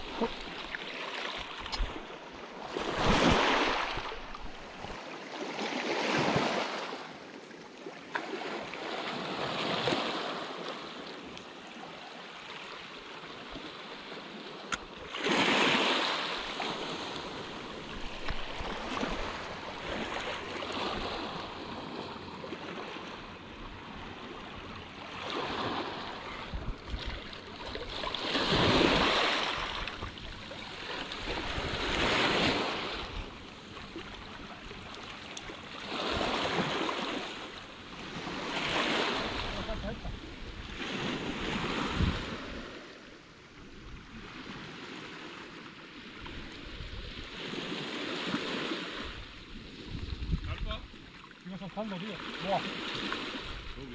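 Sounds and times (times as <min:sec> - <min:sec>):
small waves washing ashore: 0:00.0 - 0:53.9
wind on microphone: 0:26.3 - 0:27.3, 0:39.5 - 0:42.7, 0:46.3 - 0:47.4, 0:49.1 - 0:50.9.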